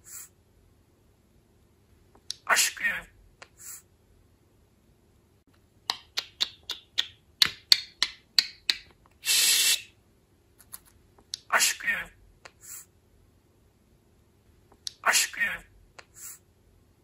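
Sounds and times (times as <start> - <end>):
budgerigar raspy hiss: 0.0 - 0.3, 2.4 - 3.0, 3.6 - 3.9, 9.2 - 9.9, 11.4 - 12.9, 15.0 - 16.4
budgerigar clicks and chirps: 5.9 - 8.9.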